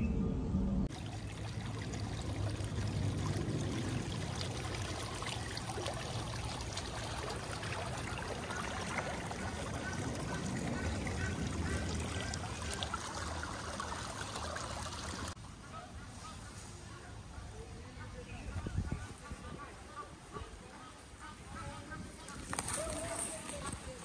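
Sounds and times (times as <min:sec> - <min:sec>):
stream water rushing and trickling: 0:00.9 - 0:15.6.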